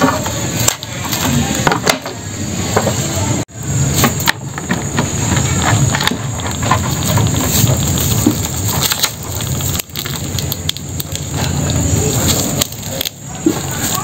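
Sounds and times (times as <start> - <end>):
crab scratching on wooden boards: 4.0 - 14.0
hands and cord rustling: 5.0 - 14.0.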